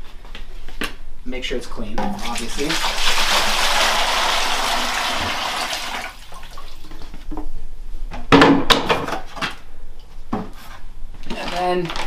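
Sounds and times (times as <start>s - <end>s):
water pouring into plastic bucket: 2.1s - 6.9s.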